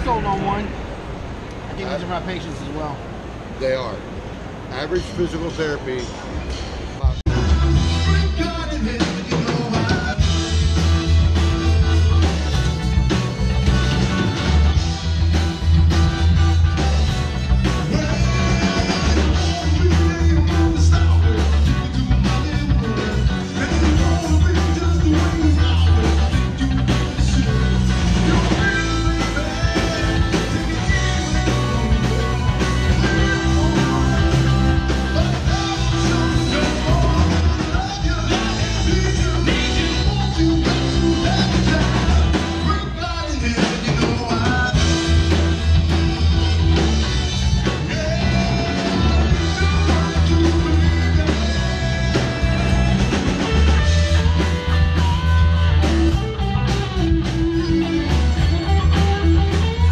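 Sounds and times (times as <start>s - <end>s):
drums with steady beat: 6.6s - 59.9s
bass guitar: 7.0s - 59.9s
electric guitars: 7.0s - 59.9s
person singing: 17.6s - 54.5s.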